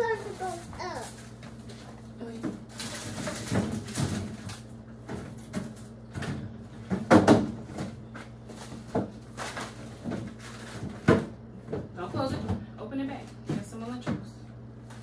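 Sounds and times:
boxes knocking in plastic drawer: 2.4 - 8.0, 9.9 - 12.6.

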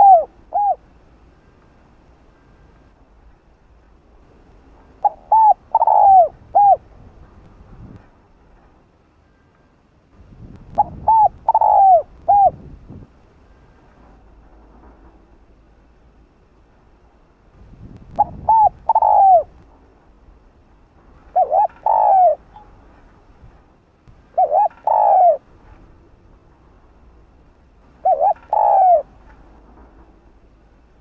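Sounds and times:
dove cooing: 0.0 - 0.9, 5.0 - 6.8, 10.8 - 12.6, 18.2 - 19.6, 21.3 - 22.7, 24.3 - 25.5, 28.0 - 29.2.

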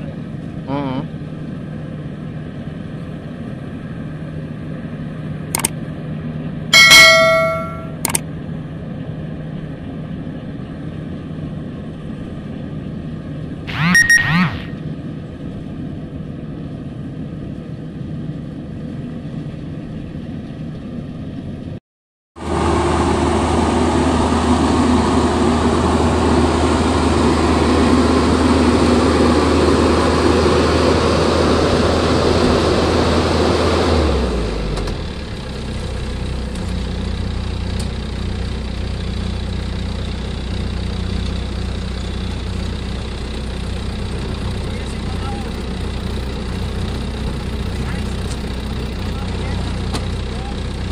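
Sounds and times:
combine harvester engine running: 0.0 - 21.8, 22.4 - 50.9
short chime: 6.8 - 8.0.

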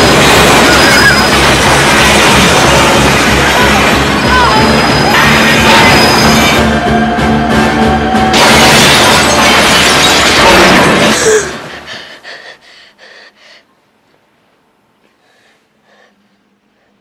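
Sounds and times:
train crashing: 0.0 - 11.9
boy gasping and breathing: 11.4 - 13.7.

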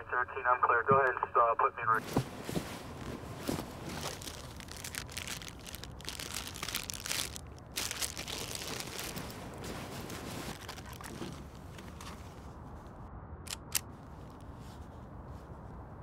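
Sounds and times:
plastic water bottle crinkling: 2.0 - 12.2
backpack fabric rustling: 2.0 - 12.5.

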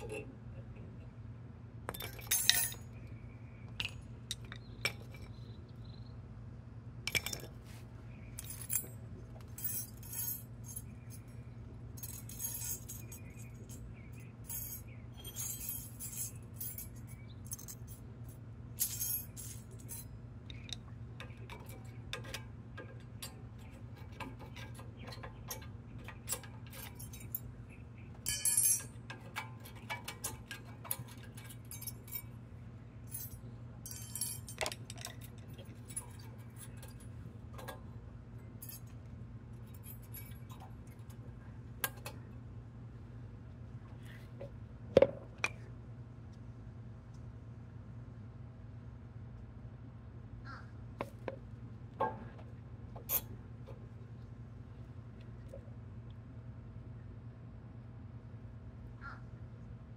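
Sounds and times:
metal brake parts clinking: 0.0 - 0.3, 1.9 - 6.0, 7.1 - 42.4, 51.0 - 53.9
steady low hum: 0.0 - 59.9.

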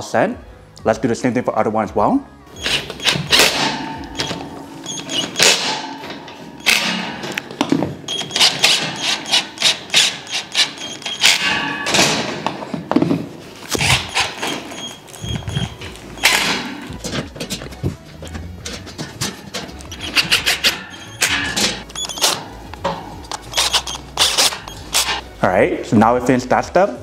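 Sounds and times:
metal tubing knocks and clanks: 15.6 - 23.4.

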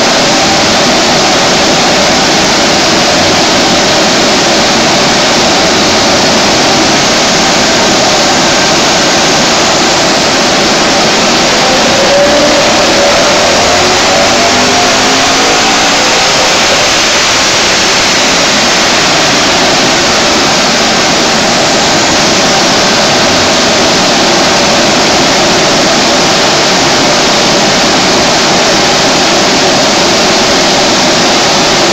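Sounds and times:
cooling blower rushing air: 0.0 - 31.9
car engine revs falling: 8.3 - 19.1.

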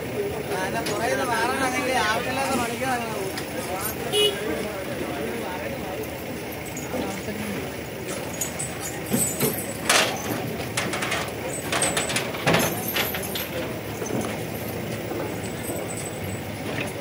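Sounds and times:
crowd chatter: 0.0 - 17.0
sharp knocks and clatters: 8.2 - 17.0.

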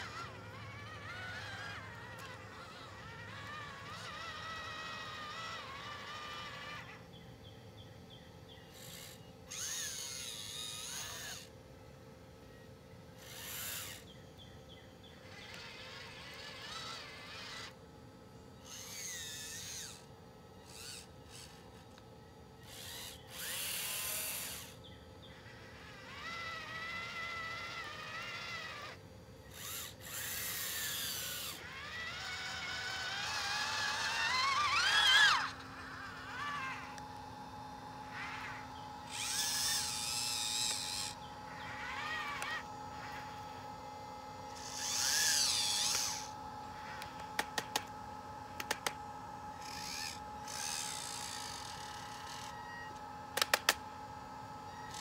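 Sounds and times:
small electric motors whirring: 0.0 - 55.0
sharp clicks: 46.9 - 48.0, 48.6 - 49.0, 53.3 - 53.8.

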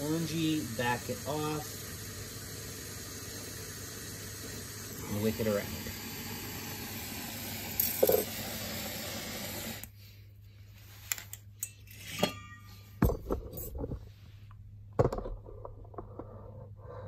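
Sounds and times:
torch flame hissing: 0.0 - 10.0.

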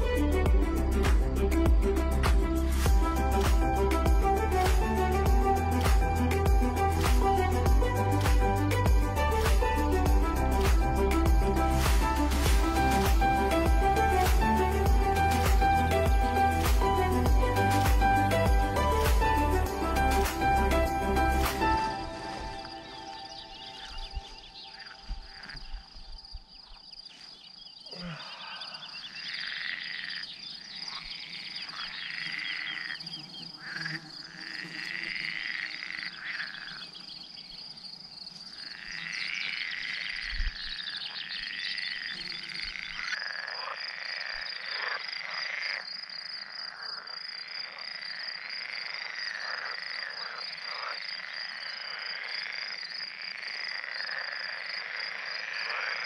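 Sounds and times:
frogs croaking: 21.8 - 56.0.

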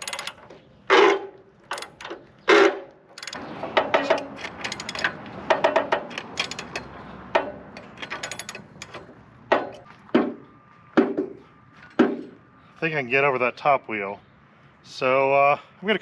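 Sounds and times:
sharp knocks: 3.6 - 12.4
socket ratchet clicking: 4.1 - 9.0.

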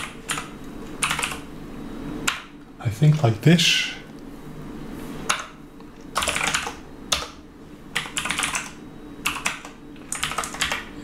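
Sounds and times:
computer keyboard typing: 0.0 - 1.5, 5.3 - 10.9.

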